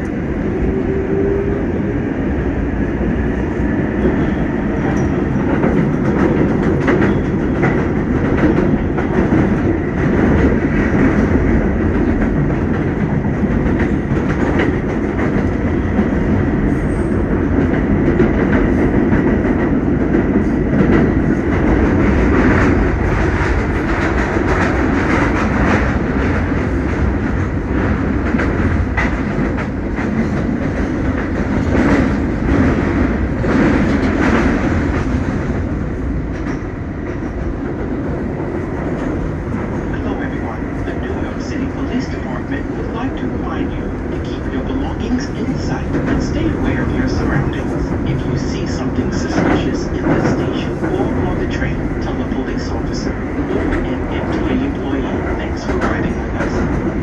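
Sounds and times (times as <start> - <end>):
subway wheels rumbling on rail: 0.0 - 57.0
rapid track clicks: 3.5 - 16.7, 17.3 - 57.0.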